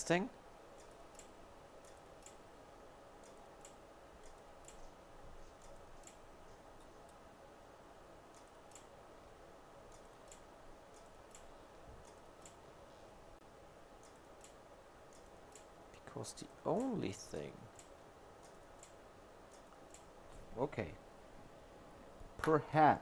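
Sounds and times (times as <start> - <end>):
low steady hum: 0.0 - 23.0
small clicks and ticks of tools: 0.8 - 2.4, 3.2 - 6.2, 8.3 - 8.9, 9.9 - 12.6, 14.0 - 20.4.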